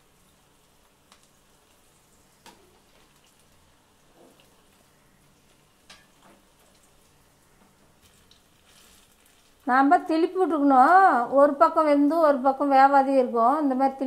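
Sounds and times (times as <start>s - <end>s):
batter sizzling in hot oil: 0.0s - 11.8s.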